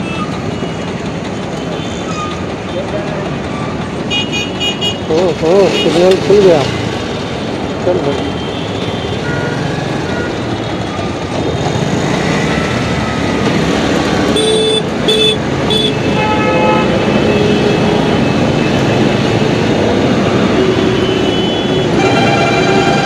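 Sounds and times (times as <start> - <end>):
road traffic roar: 0.0 - 23.0
car horn toots: 14.4 - 17.7, 21.0 - 23.0.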